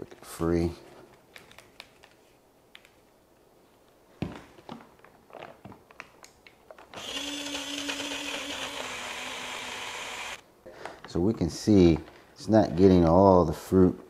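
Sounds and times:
blender motor humming: 0:07.0 - 0:10.4.

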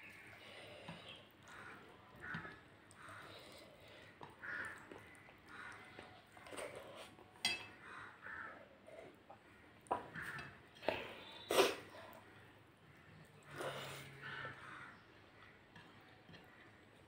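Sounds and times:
fingers mixing rice on a plate: 0:00.0 - 0:12.2, 0:12.9 - 0:17.0
chewing: 0:00.1 - 0:07.4.

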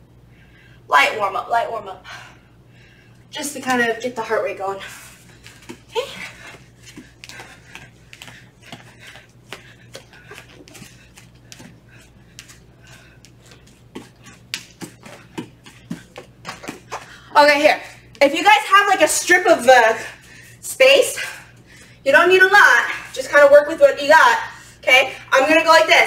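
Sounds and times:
bare feet padding on mats: 0:04.9 - 0:17.2.

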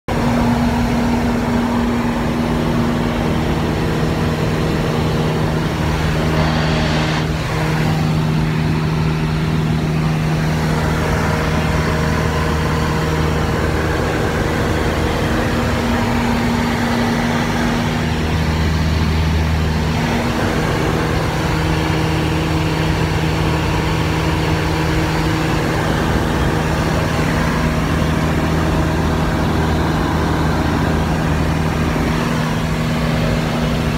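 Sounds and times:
propeller aircraft engine drone: 0:00.1 - 0:33.9.

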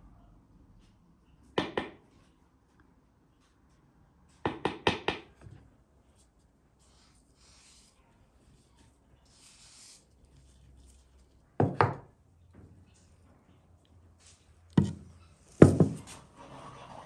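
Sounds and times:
kitchenware knocking on wooden table: 0:11.6 - 0:12.1, 0:14.8 - 0:15.0, 0:15.6 - 0:16.0.

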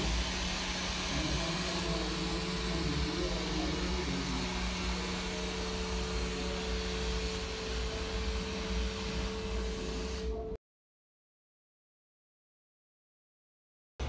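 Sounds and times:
held hum tone: 0:00.0 - 0:10.6
machine drone with rumble: 0:00.0 - 0:10.6.

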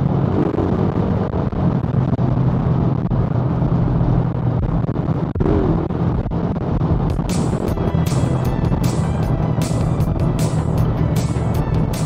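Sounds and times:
motorcycle engine running: 0:05.5 - 0:12.0.

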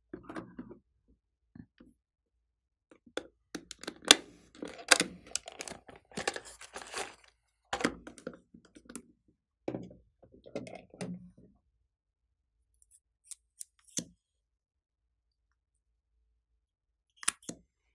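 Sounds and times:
plastic case clicks and clatters: 0:03.7 - 0:07.2.

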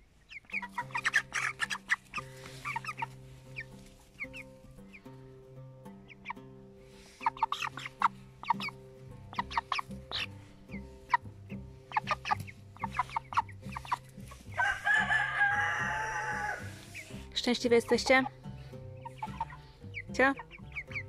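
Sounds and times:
chickens clucking: 0:00.0 - 0:21.0
rooster crowing: 0:14.6 - 0:17.0.

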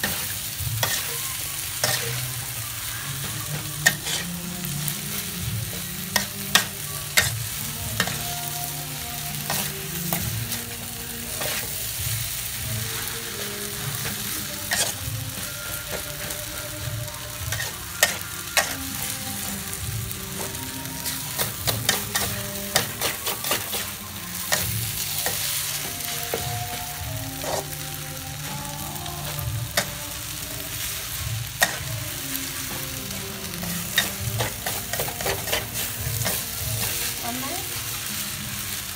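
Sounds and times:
metal spatula scraping wok: 0:00.0 - 0:05.1, 0:11.3 - 0:16.4, 0:20.4 - 0:26.8, 0:30.7 - 0:37.6
noodles sizzling in wok: 0:00.0 - 0:38.9.

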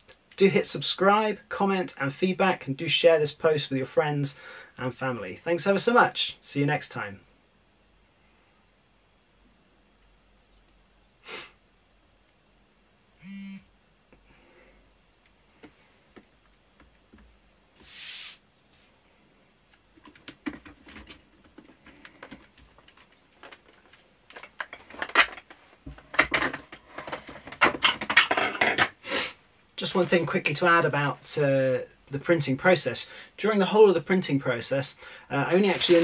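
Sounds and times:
handling clicks and knocks: 0:20.0 - 0:29.0
plastic bag crinkling: 0:35.5 - 0:36.0.

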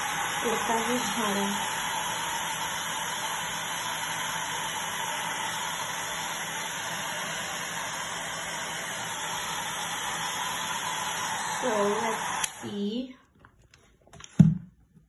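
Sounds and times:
hair dryer running: 0:00.0 - 0:13.1.

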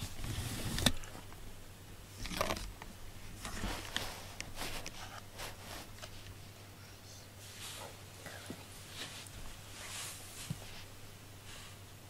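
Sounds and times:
low steady hum: 0:00.0 - 0:12.0
rustling scuffs near microphone: 0:03.3 - 0:06.2, 0:07.4 - 0:11.8.

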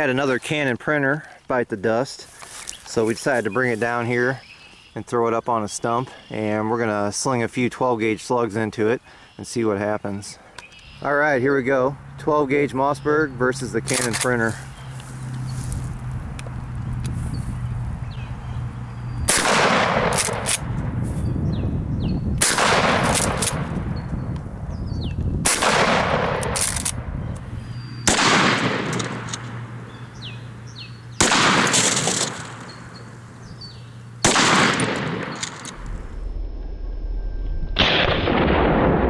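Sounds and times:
shotgun shots echoing: 0:19.3 - 0:20.7, 0:22.4 - 0:23.8, 0:25.4 - 0:27.0, 0:28.0 - 0:29.6, 0:31.2 - 0:32.7, 0:34.2 - 0:35.8, 0:37.8 - 0:39.0.

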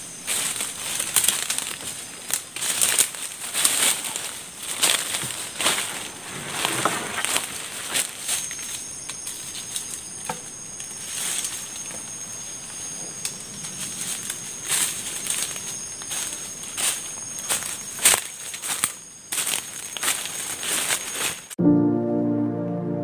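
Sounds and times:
high-pitched insect drone: 0:07.3 - 0:21.3.

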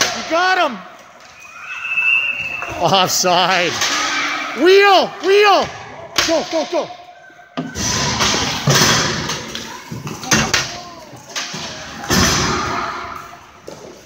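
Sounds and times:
hockey thumps and slams on boards: 0:07.6 - 0:10.8, 0:11.4 - 0:12.8.

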